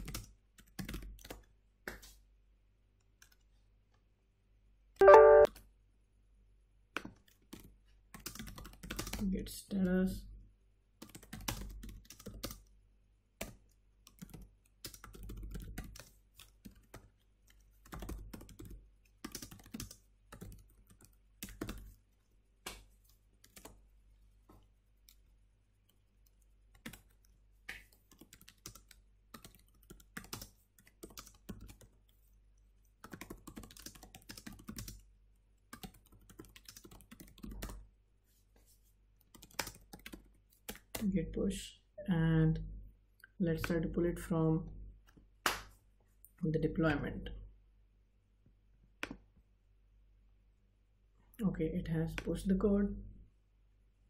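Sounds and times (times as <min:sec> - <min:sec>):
typing on computer keyboard: 0:00.0 - 0:01.5, 0:07.0 - 0:09.2, 0:11.0 - 0:12.7, 0:13.4 - 0:22.0, 0:23.4 - 0:23.8, 0:25.1 - 0:32.1, 0:33.0 - 0:37.9, 0:39.2 - 0:41.0.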